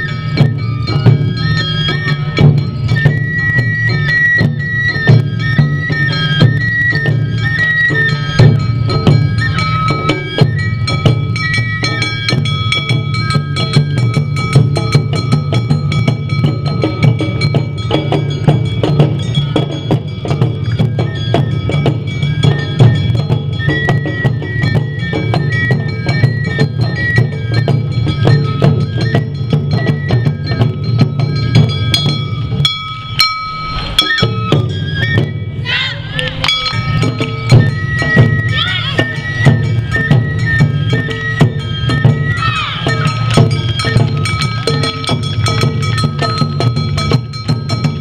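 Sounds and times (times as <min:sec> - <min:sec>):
bamboo flute melody: 0:00.0 - 0:48.0
taiko drums beating: 0:00.0 - 0:48.0
clanging gong: 0:08.1 - 0:23.6, 0:27.9 - 0:35.6, 0:36.2 - 0:38.8, 0:42.4 - 0:48.0.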